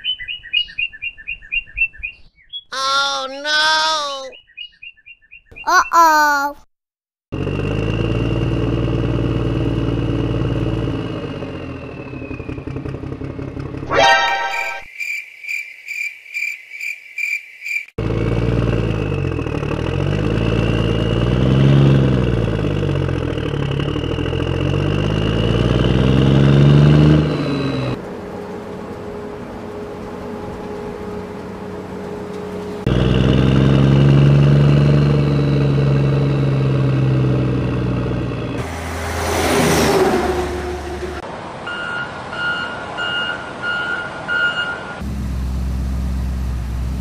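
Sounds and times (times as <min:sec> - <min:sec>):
heavy vehicle engine: 0:07.4 - 0:14.8, 0:18.0 - 0:47.0.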